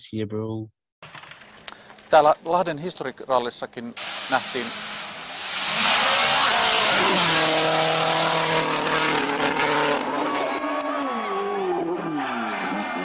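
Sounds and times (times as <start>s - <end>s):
rally car engine at high revs: 5.4s - 13.0s.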